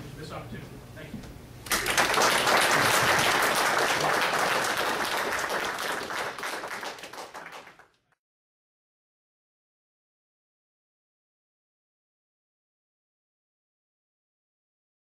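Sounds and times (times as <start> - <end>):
audience applauding: 1.7 - 8.1.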